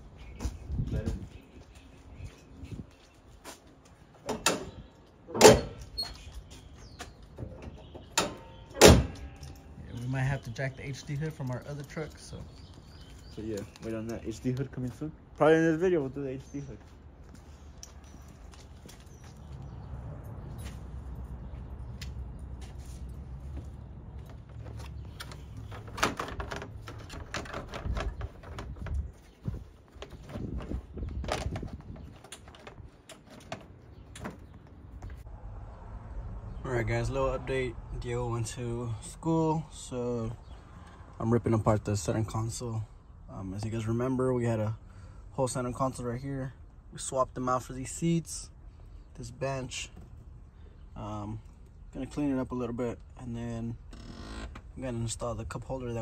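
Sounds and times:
metal hood banging shut: 0:04.2 - 0:06.1, 0:07.4 - 0:09.4, 0:25.7 - 0:28.9.

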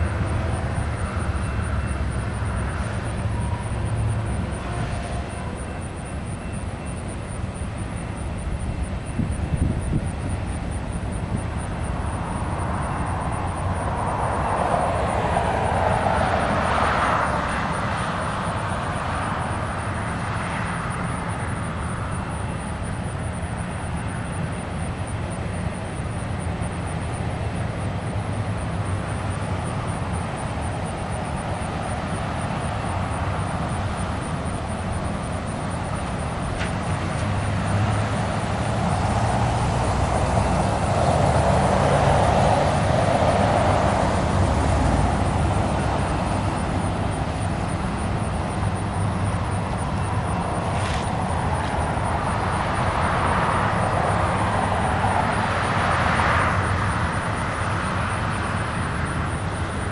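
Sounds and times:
car passing: 0:08.4 - 0:23.7, 0:26.8 - 0:59.9
pickup truck driving by: 0:28.2 - 0:59.8.

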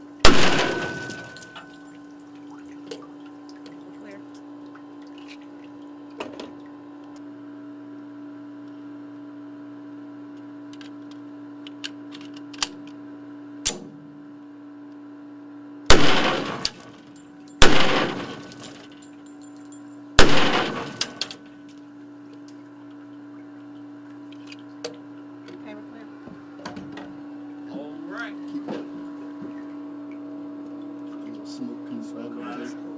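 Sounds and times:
steady low hum: 0:00.0 - 0:32.9
pistol shots ringing: 0:00.2 - 0:01.9, 0:15.9 - 0:18.9, 0:20.2 - 0:21.4
pistol handling clicks: 0:11.7 - 0:12.9.

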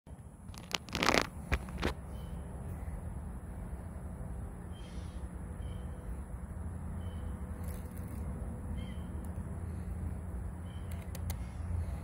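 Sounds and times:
low outdoor rumble: 0:00.1 - 0:12.0
sharp rustling clicks: 0:00.5 - 0:02.0.

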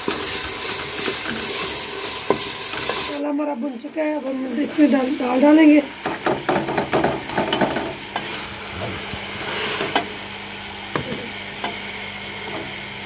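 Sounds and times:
lentils sizzling in a pot: 0:00.0 - 0:12.4
spoon knocking against pot: 0:06.0 - 0:07.9.

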